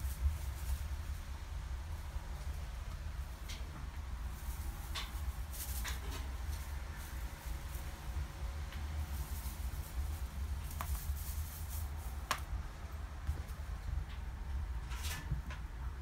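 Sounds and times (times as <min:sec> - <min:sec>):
faint ticks and rustles: 0:02.4 - 0:12.6.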